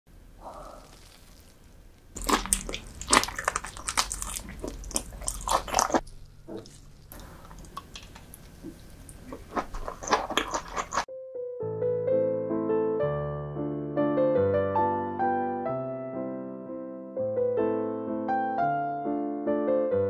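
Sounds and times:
wet chewing and smacking: 0.5s - 11.1s.

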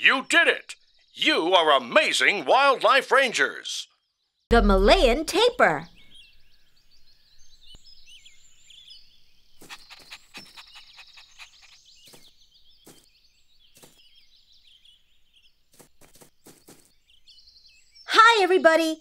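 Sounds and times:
birds chirping: 0.0s - 19.0s
puppy panting: 9.6s - 11.9s.

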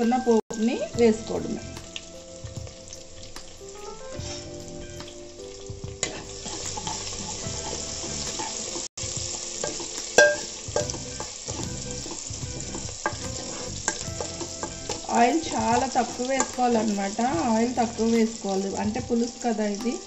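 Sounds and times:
spices sizzling in hot oil: 0.0s - 20.0s
spatula scraping and tapping pan: 6.0s - 8.9s, 9.6s - 17.0s.

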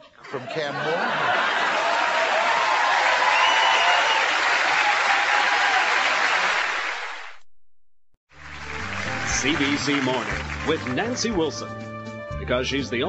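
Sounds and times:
audience applauding: 0.8s - 7.4s, 8.4s - 11.5s.

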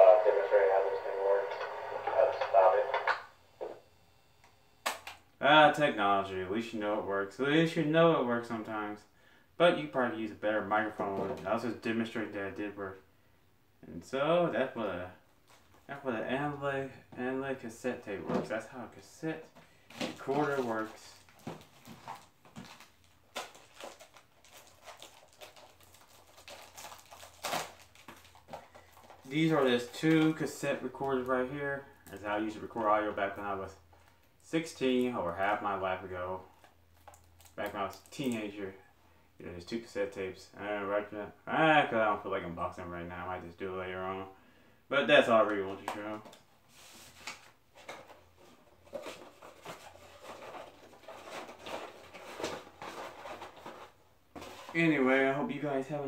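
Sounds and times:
paper rustling: 19.9s - 31.2s, 46.2s - 55.0s
plastic packaging crinkling: 19.9s - 31.3s.

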